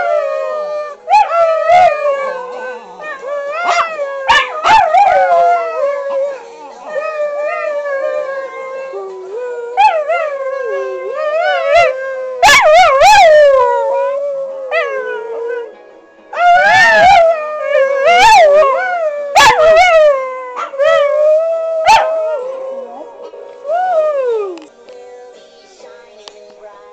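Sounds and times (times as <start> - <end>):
dogs howling: 0.0 - 15.7, 16.4 - 24.6
music: 0.0 - 26.9
dogs yelping: 19.3 - 21.0.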